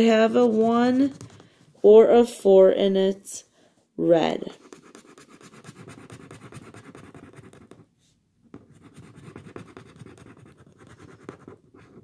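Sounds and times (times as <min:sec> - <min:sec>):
marker scribbling on paper: 0:00.0 - 0:01.5, 0:04.4 - 0:07.9, 0:08.6 - 0:12.0.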